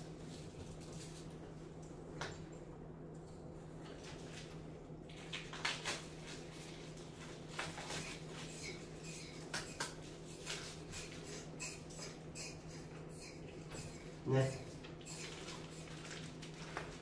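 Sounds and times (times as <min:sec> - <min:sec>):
steady low hum: 0:00.0 - 0:17.0
clicks and crinkly rustles: 0:03.8 - 0:11.2, 0:14.8 - 0:17.0.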